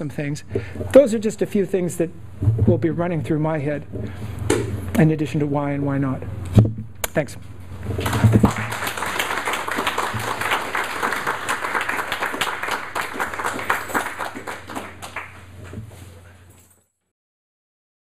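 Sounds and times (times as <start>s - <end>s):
audience applauding: 8.0s - 15.7s.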